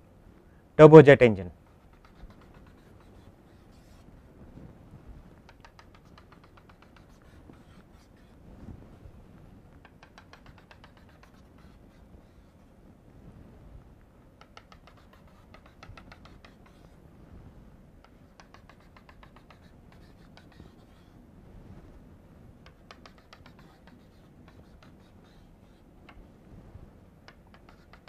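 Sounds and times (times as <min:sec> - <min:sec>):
chalk tapping on blackboard: 0:01.6 - 0:04.1, 0:05.4 - 0:08.4, 0:09.8 - 0:12.7, 0:14.4 - 0:17.0, 0:18.0 - 0:21.2, 0:22.6 - 0:26.2, 0:27.2 - 0:28.0.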